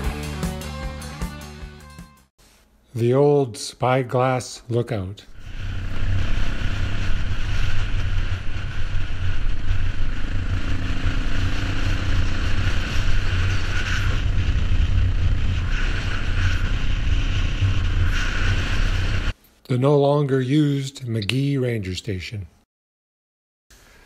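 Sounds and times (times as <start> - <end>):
wind noise on microphone: 5.3 - 19.4
dirt bike engine running: 5.7 - 19.3.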